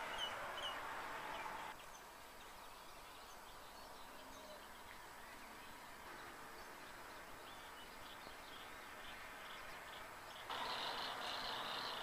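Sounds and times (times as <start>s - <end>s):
birds chirping: 0.0s - 12.0s
faint high bird calls: 10.4s - 12.0s.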